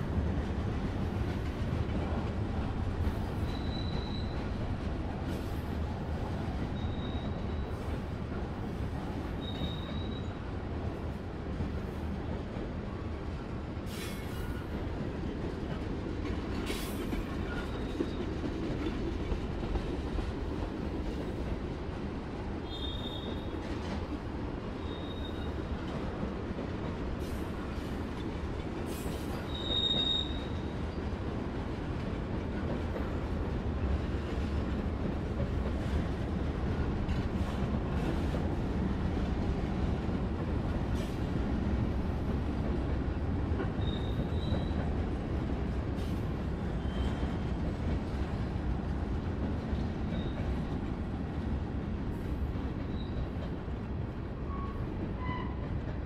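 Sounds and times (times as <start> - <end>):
train wheels rumbling on rails: 0.0 - 56.0
high-pitched wheel squeals: 3.5 - 4.4, 6.8 - 7.7, 9.4 - 10.3, 29.5 - 30.5
train car clanks: 13.8 - 21.4, 22.6 - 41.4, 42.2 - 51.0.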